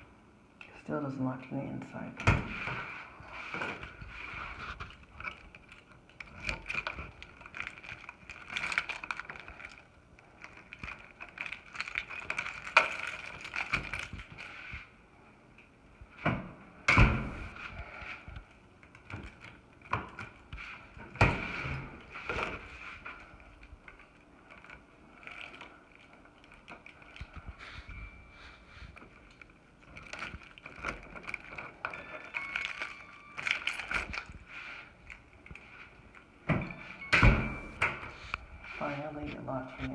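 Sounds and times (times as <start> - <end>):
key rattling in lock cylinder: 29.0 - 34.4.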